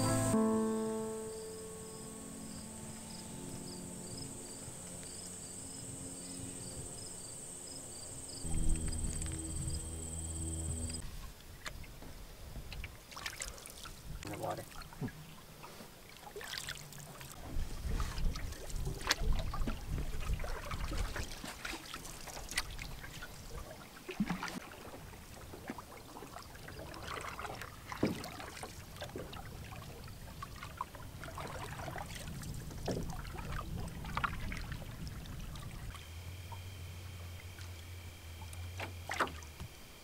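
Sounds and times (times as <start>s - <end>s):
paddles splashing in water: 12.6s - 39.7s.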